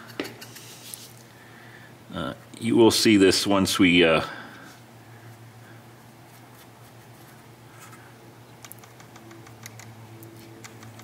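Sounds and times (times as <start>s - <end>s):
steady low hum: 0.0s - 11.0s
small clicks: 8.6s - 11.0s.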